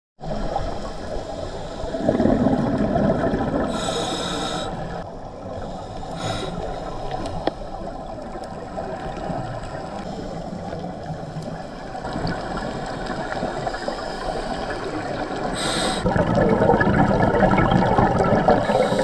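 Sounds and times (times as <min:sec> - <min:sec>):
exhaled bubbles gurgling: 0:00.2 - 0:07.1, 0:07.8 - 0:19.0
regulator inhale hiss: 0:00.5 - 0:02.2, 0:03.7 - 0:07.9, 0:12.8 - 0:16.1, 0:18.6 - 0:19.0.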